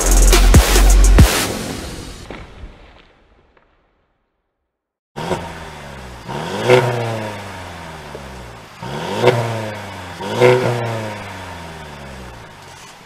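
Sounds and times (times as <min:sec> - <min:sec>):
car engine revving: 0:05.2 - 0:13.0.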